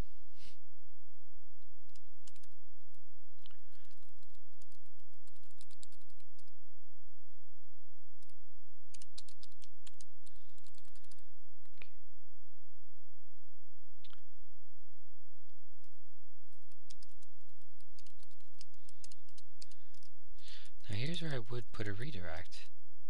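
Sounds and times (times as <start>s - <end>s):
steady low hum: 0.0s - 23.0s
typing on a computer keyboard: 1.9s - 2.5s, 3.8s - 6.5s, 8.2s - 11.2s, 15.8s - 20.1s.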